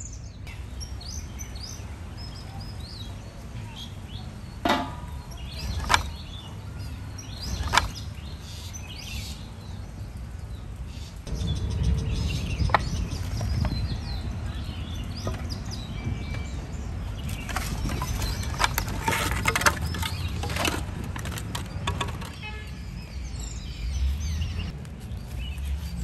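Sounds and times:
small birds chirping: 0.0 - 26.0
sharp knocks: 4.6 - 6.1
low rumbling noise: 9.8 - 21.7.

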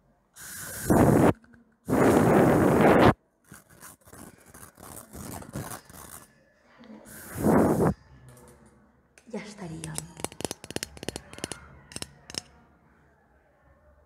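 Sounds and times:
scraping and rubbing on microphone: 0.7 - 6.3, 7.1 - 8.0.

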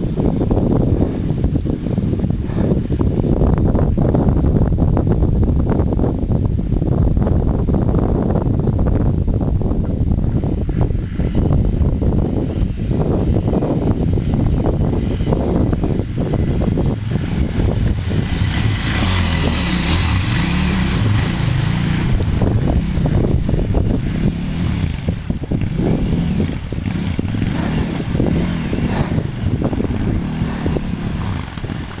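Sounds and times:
motorcycle engine revving: 9.5 - 32.0
wheels splashing through water: 10.4 - 32.0.

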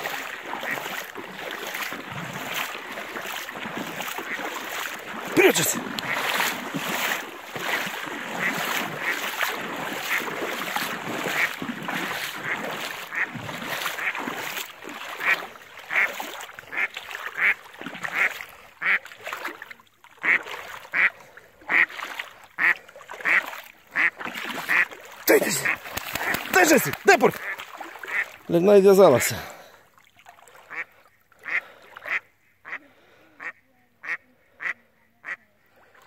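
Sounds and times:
water sloshing: 0.0 - 32.1
duck quacking: 3.9 - 4.6, 5.3 - 6.5, 7.6 - 10.4, 11.2 - 11.6, 15.2 - 16.1, 16.7 - 19.0, 20.2 - 21.9, 22.6 - 28.3, 30.7 - 32.8, 33.4 - 35.4.

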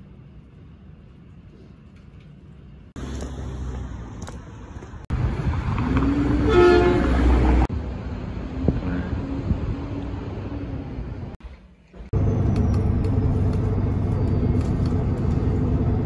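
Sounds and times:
traffic noise: 0.0 - 16.0
vehicle horn: 6.4 - 7.6.

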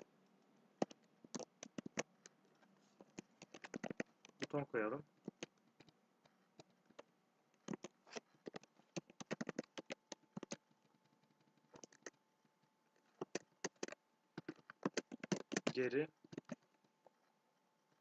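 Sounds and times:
keyboard typing: 0.8 - 2.3, 3.0 - 4.6, 5.2 - 6.0, 6.6 - 12.2, 13.1 - 16.9.

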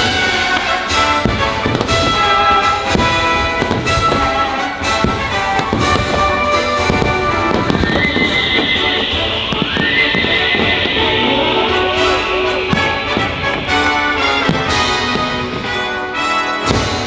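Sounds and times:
fireworks bursting: 0.0 - 17.0
orchestral music with brass: 0.0 - 17.0.

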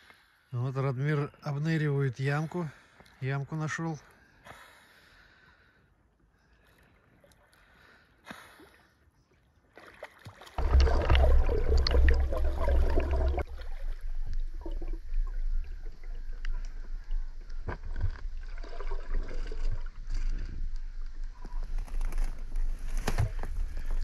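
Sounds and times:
faint water sounds: 5.9 - 24.0
rushing splashing water: 10.1 - 17.0.

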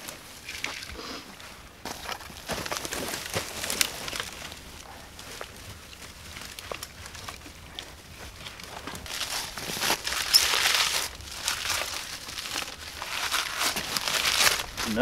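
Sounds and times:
bark being peeled and torn: 8.5 - 15.0.

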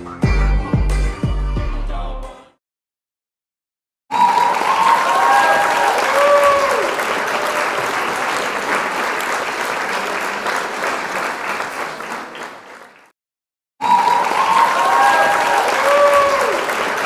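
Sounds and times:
crowd clapping: 4.1 - 13.2, 13.8 - 17.0.

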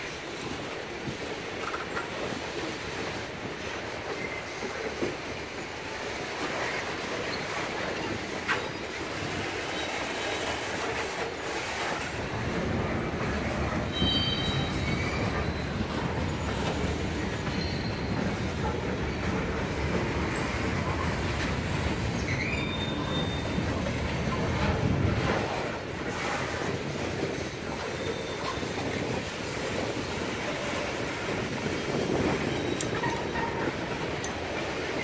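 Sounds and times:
train wheels rumbling on rails: 0.0 - 35.0
high-pitched wheel squeals: 13.9 - 15.8, 22.2 - 23.6.

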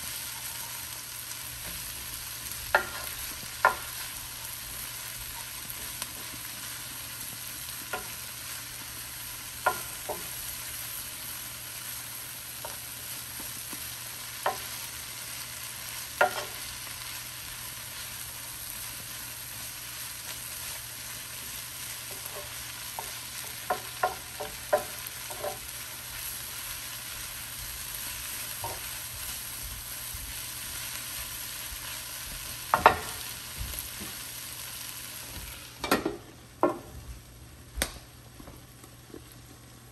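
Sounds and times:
kale sizzling in oil: 0.0 - 35.8
wooden spoon knocking against pan: 2.7 - 3.9, 9.6 - 10.3, 16.2 - 16.6, 23.0 - 25.6, 32.7 - 33.2, 35.8 - 36.9.

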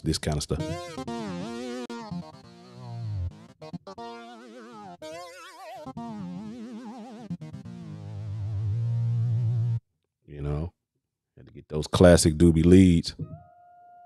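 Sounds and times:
synth lead melody with vibrato: 0.6 - 9.8.

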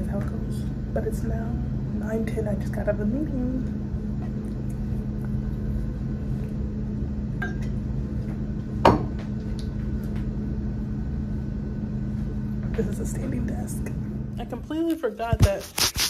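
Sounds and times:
electrical equipment humming: 0.0 - 16.0
mug knocking on desk: 8.8 - 9.2.

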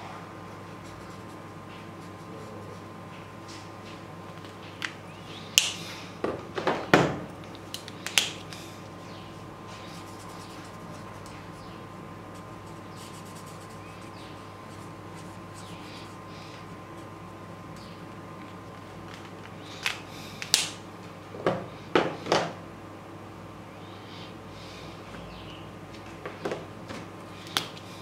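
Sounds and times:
felt-tip marker on paper: 9.8 - 16.2.

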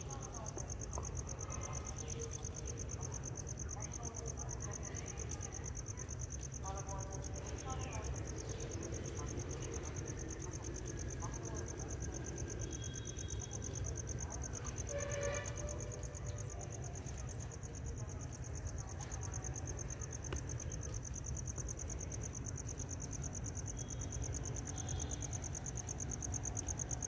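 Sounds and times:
high-pitched insect chorus: 7.2 - 27.0.

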